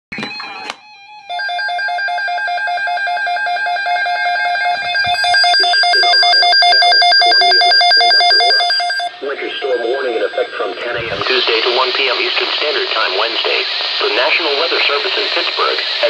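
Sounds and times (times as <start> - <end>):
electronic alarm beeping: 0.1 - 11.7.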